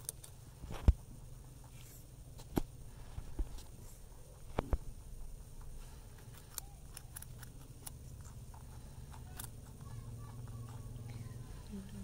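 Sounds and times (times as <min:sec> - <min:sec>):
rabbits crunching carrot: 0:00.0 - 0:11.8
low steady hum: 0:00.0 - 0:12.0.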